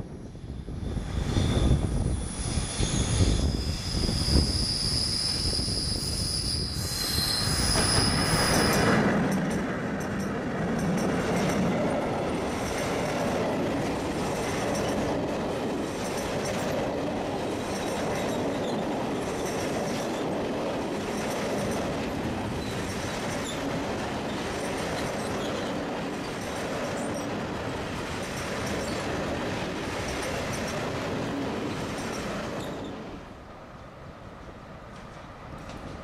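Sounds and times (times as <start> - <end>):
train wheels rumbling and clattering: 0.8 - 33.3, 34.4 - 36.0
wheel squeal: 1.3 - 9.1, 32.0 - 33.0.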